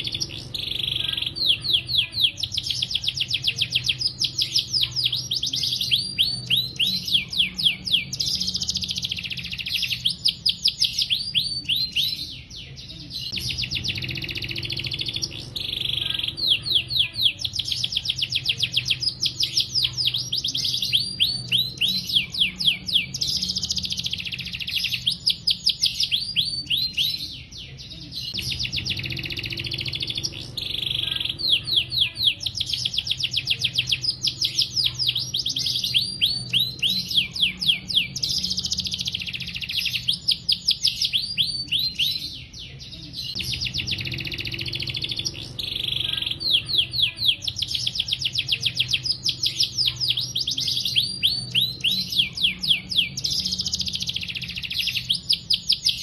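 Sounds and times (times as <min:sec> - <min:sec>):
canary singing: 0:00.0 - 0:56.0.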